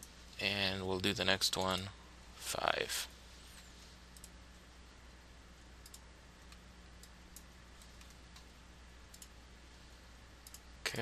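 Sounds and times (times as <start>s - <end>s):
low steady hum: 0.0s - 11.0s
computer mouse clicks: 4.1s - 4.4s, 5.8s - 8.5s, 9.1s - 9.4s, 10.4s - 10.7s.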